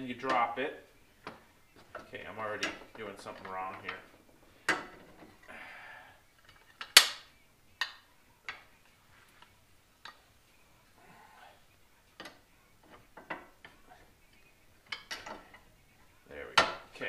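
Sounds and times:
metal clicks and knocks: 0:01.2 - 0:05.4, 0:14.8 - 0:15.7, 0:16.5 - 0:17.0.

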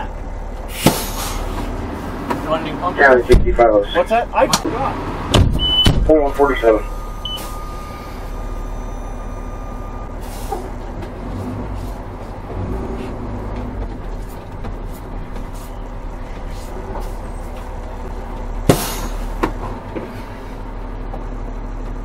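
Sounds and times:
diesel engine droning: 0:00.0 - 0:22.0.

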